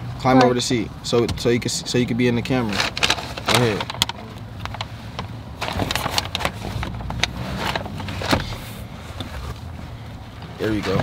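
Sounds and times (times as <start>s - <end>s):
paper bags rustling: 2.6s - 4.0s, 5.6s - 8.6s.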